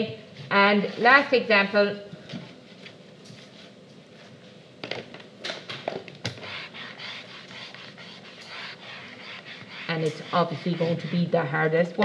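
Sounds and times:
eraser scrubbing whiteboard: 0:06.3 - 0:11.7.

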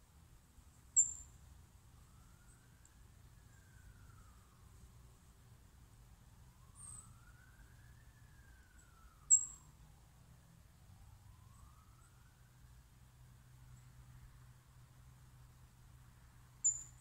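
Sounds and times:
distant siren wailing: 0:01.0 - 0:14.4.

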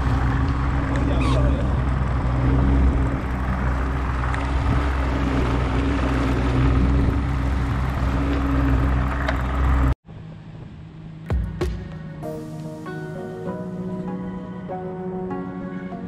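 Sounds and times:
water noise: 0:00.0 - 0:10.0
rushing wind: 0:00.0 - 0:11.0
boat motor running: 0:00.0 - 0:11.7.

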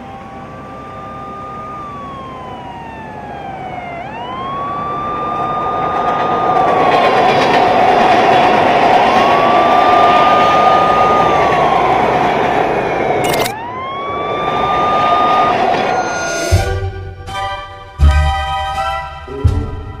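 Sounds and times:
low steady hum: 0:00.0 - 0:05.8
siren wailing: 0:00.0 - 0:17.6.

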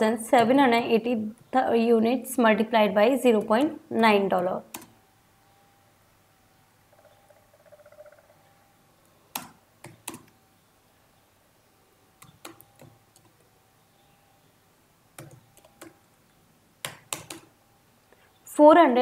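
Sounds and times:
computer keyboard keystrokes: 0:04.7 - 0:05.0, 0:09.3 - 0:10.4, 0:12.2 - 0:13.4, 0:15.2 - 0:16.0, 0:16.8 - 0:17.5.

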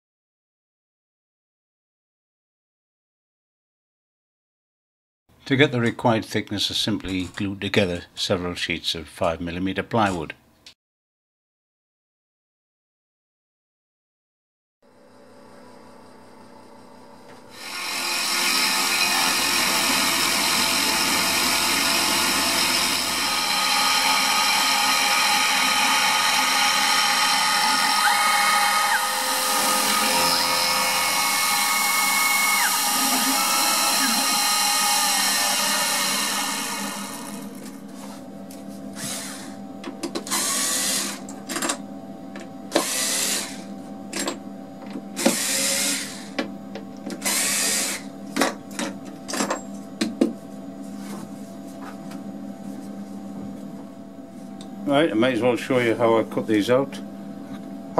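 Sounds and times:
router cutting plywood: 0:17.4 - 0:37.7.

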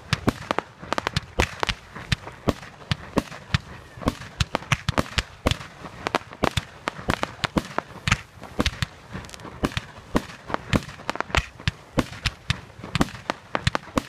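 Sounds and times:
fireworks bangs: 0:00.0 - 0:14.0.

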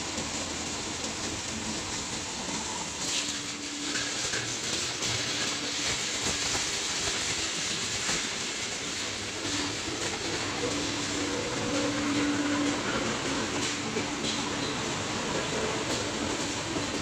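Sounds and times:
recycling machine mechanical din: 0:00.0 - 0:17.0.

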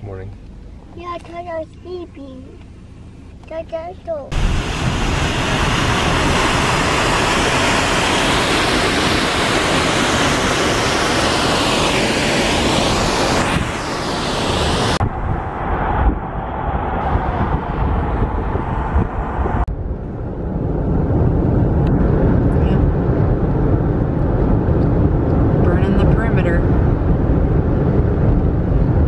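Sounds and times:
car wind and road noise: 0:00.0 - 0:29.0
waterfall rushing hiss: 0:04.4 - 0:15.0.

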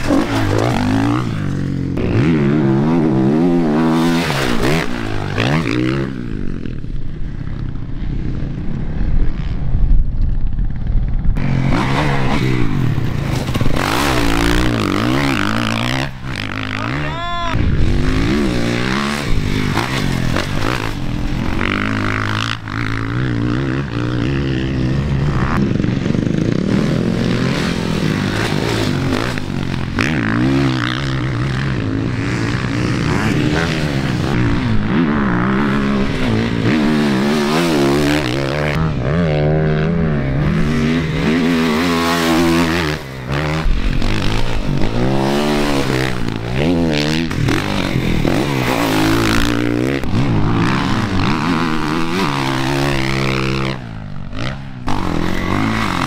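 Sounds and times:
dirt bike engines revving: 0:00.0 - 0:09.8, 0:10.5 - 0:56.0.

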